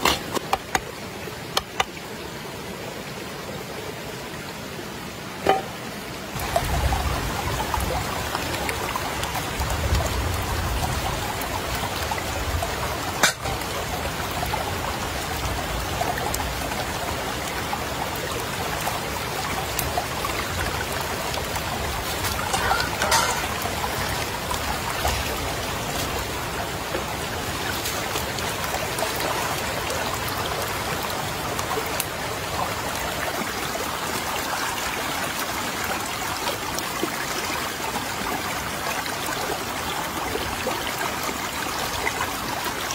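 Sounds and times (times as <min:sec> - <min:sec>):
river water running: 0:00.0 - 0:42.9
water stirring: 0:22.2 - 0:24.2.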